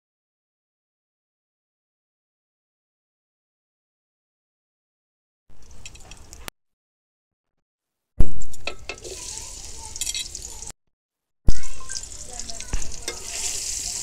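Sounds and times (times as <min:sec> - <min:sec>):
onions sizzling in hot oil: 0:08.6 - 0:10.7, 0:11.6 - 0:14.0
metal spatula clicking on pan: 0:12.5 - 0:13.4.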